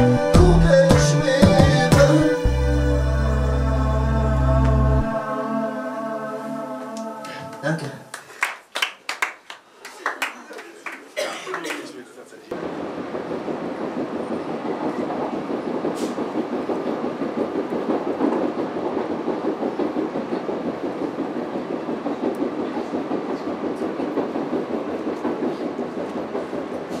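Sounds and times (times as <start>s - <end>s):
train rumble inside carriage: 12.5s - 27.0s.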